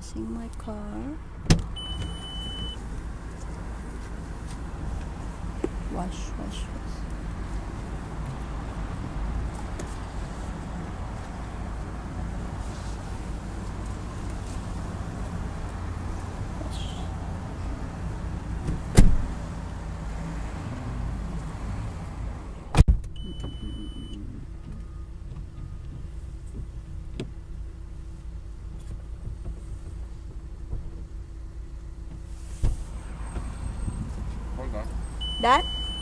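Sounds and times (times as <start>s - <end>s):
traffic rumble: 0.0s - 36.0s
car doors shutting: 1.4s - 2.8s, 18.5s - 27.4s
high electronic beep: 1.8s - 2.8s, 23.2s - 24.2s, 35.2s - 36.0s.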